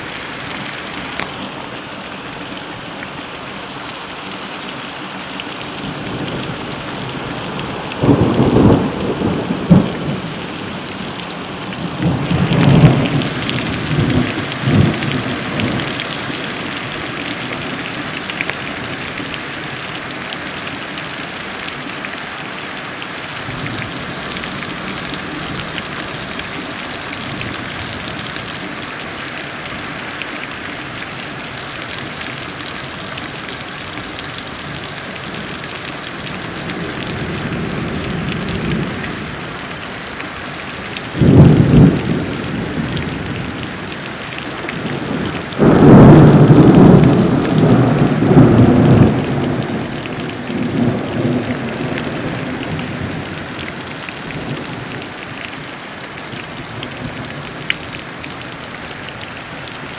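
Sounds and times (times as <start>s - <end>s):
steady rain falling: 0.0s - 59.9s
thunder rolling: 41.2s - 43.6s, 44.9s - 53.2s.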